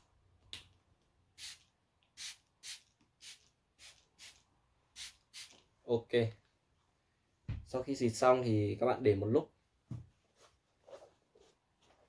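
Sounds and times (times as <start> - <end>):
spray bottle hissing sprays: 1.4 - 5.6.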